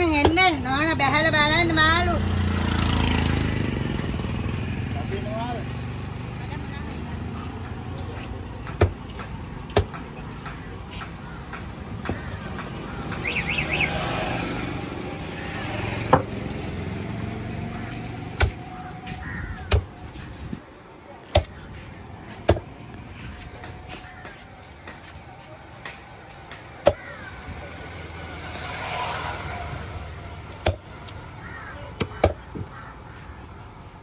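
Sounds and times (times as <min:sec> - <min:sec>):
road traffic rumble: 0:00.0 - 0:34.0
knife chopping onto wooden block: 0:21.3 - 0:21.6.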